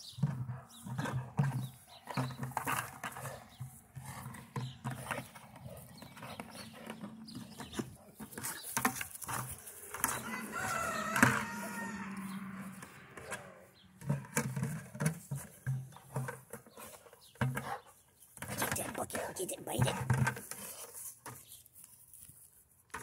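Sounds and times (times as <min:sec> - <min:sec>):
drawn-out animal call: 0:09.4 - 0:14.8
plastic pail knocking and scraping: 0:14.0 - 0:17.8.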